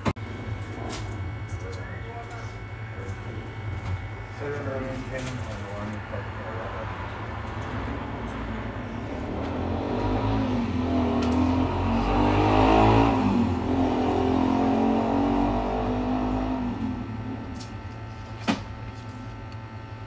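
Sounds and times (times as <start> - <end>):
steady low hum: 0.0 - 20.0
vehicle engine passing by: 7.4 - 17.1.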